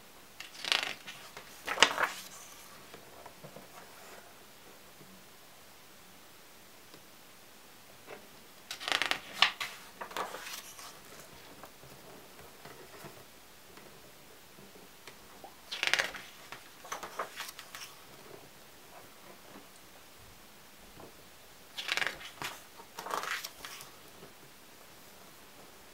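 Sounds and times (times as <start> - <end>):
album pages turning: 0.4 - 4.1, 8.7 - 11.8, 15.4 - 18.1, 21.7 - 24.1.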